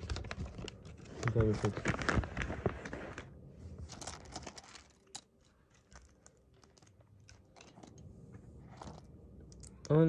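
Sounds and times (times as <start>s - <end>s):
plastic packaging crinkling: 0.0s - 8.0s.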